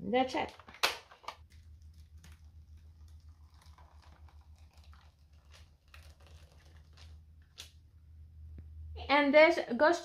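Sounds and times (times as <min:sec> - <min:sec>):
low steady hum: 0:00.0 - 0:10.0
soft ticks and crinkles: 0:01.3 - 0:07.8.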